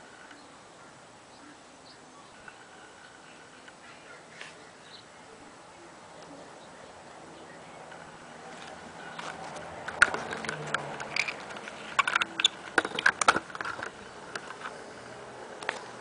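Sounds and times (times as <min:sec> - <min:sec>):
steady outdoor hiss: 0:00.0 - 0:16.0
camera handling clicks and knocks: 0:09.2 - 0:14.7.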